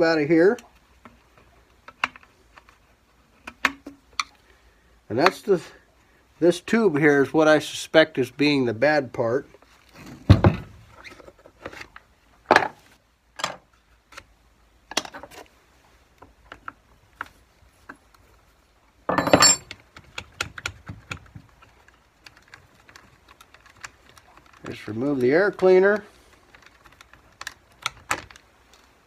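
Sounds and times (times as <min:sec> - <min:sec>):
metal parts clattering: 0:19.1 - 0:19.7
metallic tool clinks: 0:19.1 - 0:19.7.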